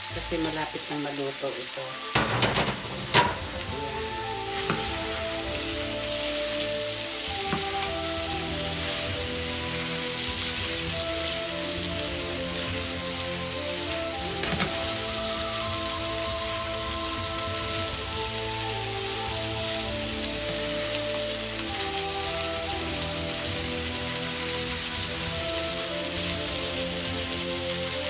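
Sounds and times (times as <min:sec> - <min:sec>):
meat and onions sizzling in a pan: 0:00.0 - 0:28.0
soft background music: 0:00.0 - 0:28.0.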